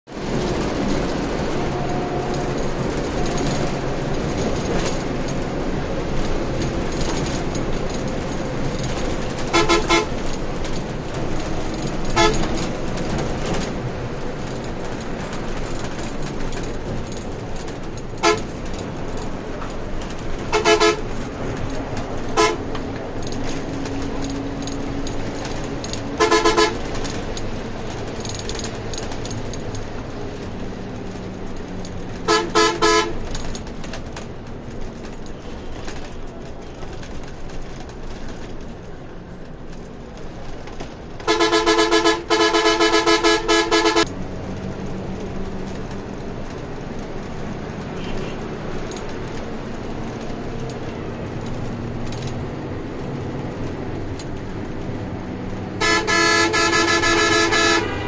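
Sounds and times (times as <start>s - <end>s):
bus engine and road noise: 0.0s - 58.0s
vehicle horn blasts: 9.5s - 10.2s, 12.2s - 12.4s, 18.2s - 18.5s, 20.5s - 21.1s, 22.4s - 22.7s, 26.2s - 26.8s, 32.3s - 33.2s, 41.3s - 44.1s, 48.0s - 48.4s, 55.8s - 58.0s.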